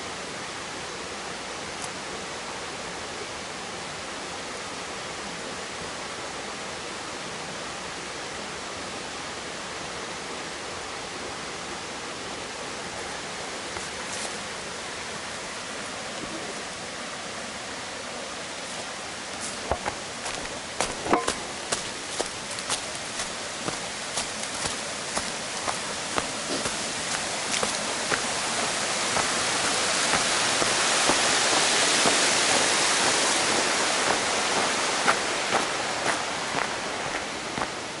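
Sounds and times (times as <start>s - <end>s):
steady rushing noise: 18.0s - 38.0s
footsteps on path: 19.3s - 38.0s.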